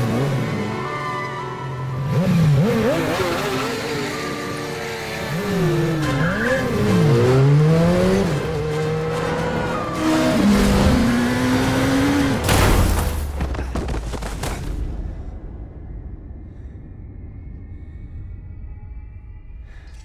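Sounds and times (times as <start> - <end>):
engines revving: 0.0 - 12.4.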